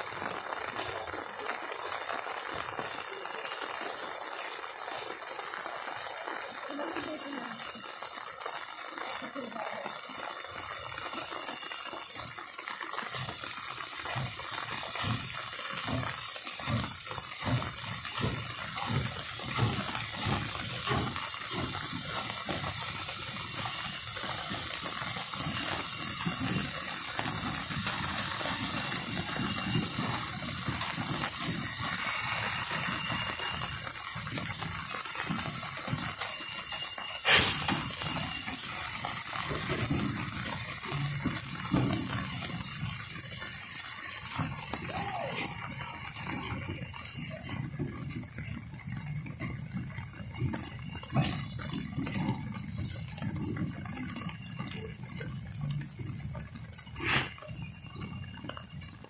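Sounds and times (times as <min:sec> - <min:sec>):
steam hissing: 0:00.0 - 0:58.2
steam locomotive chuffing: 0:00.0 - 0:59.0
sharp metal clank: 0:37.2 - 0:37.8, 0:57.0 - 0:57.5.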